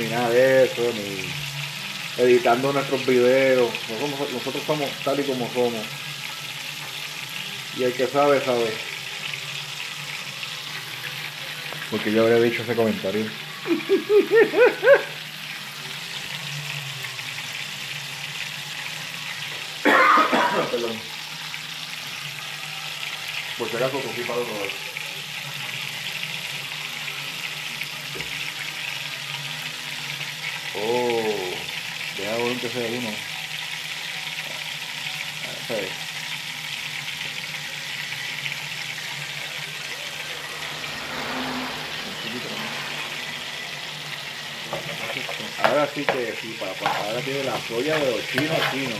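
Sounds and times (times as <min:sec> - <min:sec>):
chicken frying in oil: 0:00.0 - 0:48.9
rice sizzling in a skillet: 0:00.0 - 0:48.9
rush of noise: 0:40.2 - 0:43.9.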